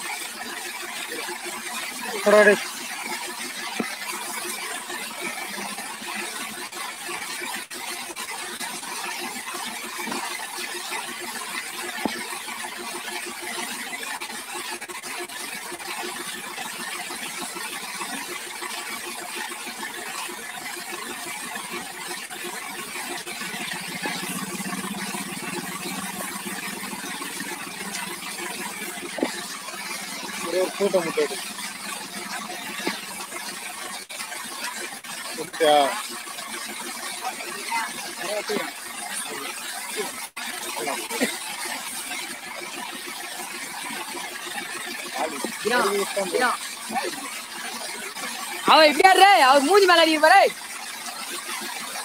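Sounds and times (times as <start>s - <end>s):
diesel engine running: 23.3s - 33.5s.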